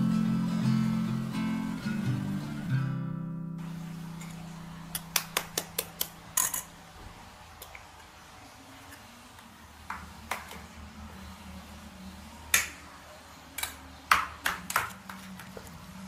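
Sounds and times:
metal spoon clinking on bowl: 6.4 - 6.7.

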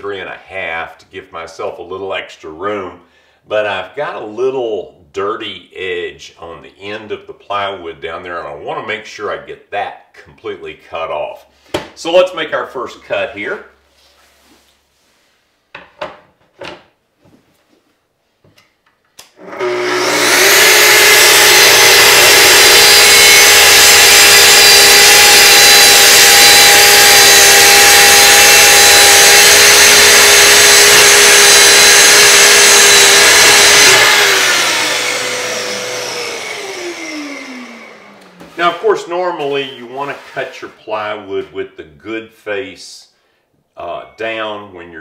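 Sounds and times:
saw spinning down: 19.4 - 38.9
circular saw cutting plywood: 19.4 - 40.8.

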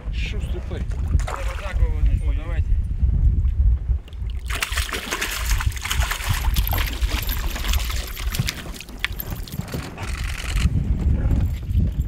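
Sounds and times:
wind on microphone: 0.0 - 12.0
fish splashing in water: 4.3 - 9.6.

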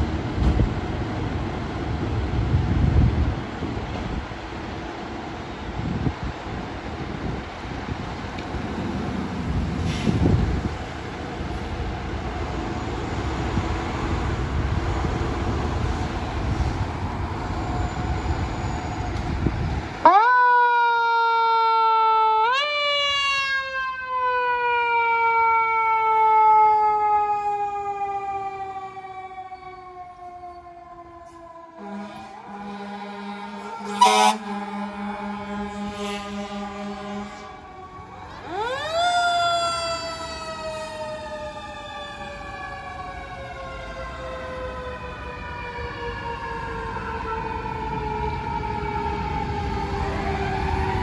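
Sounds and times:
fire engine siren wailing: 9.9 - 51.0.

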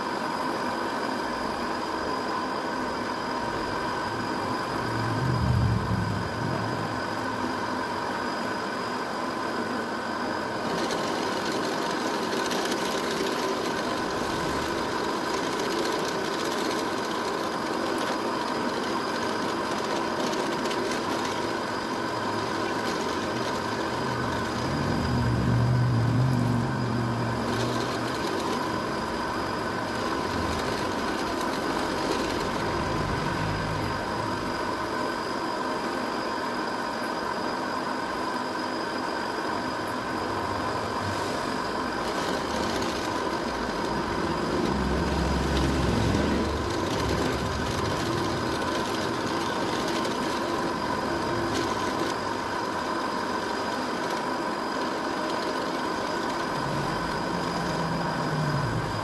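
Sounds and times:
drill press motor running: 0.0 - 36.8, 37.4 - 59.0
deeper rumbling sound: 3.4 - 8.2, 22.0 - 35.1, 39.6 - 52.0, 56.4 - 59.0.

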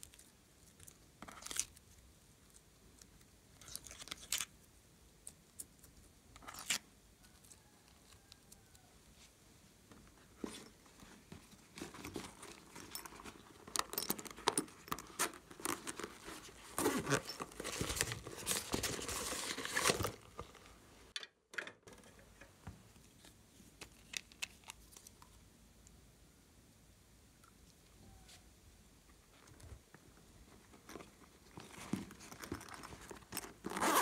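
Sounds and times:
pouch rustling and unzipping: 11.5 - 20.4, 31.6 - 34.0.

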